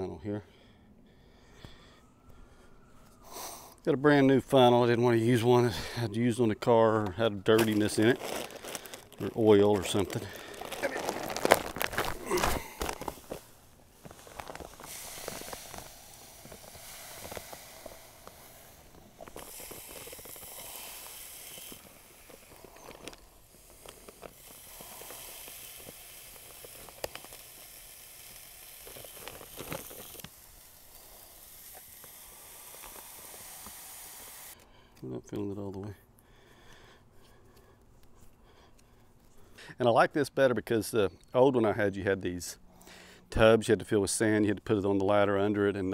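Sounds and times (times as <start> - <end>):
sand pouring through funnel: 4.1 - 34.6.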